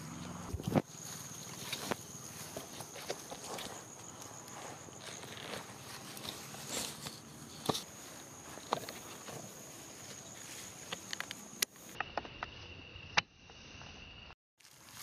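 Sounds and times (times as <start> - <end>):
footsteps in grass: 0.0 - 11.5, 14.6 - 15.0
high-pitched insect drone: 0.0 - 15.0
sharp snaps and clicks: 10.8 - 12.5.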